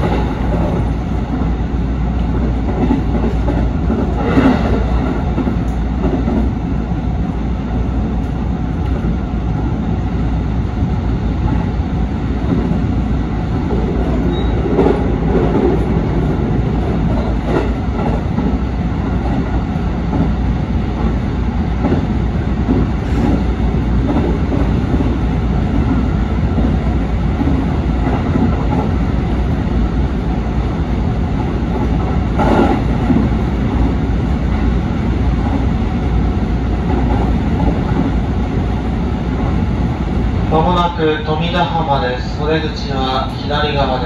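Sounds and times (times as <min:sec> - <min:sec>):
train wheels rumbling on rail: 0:00.0 - 0:44.0.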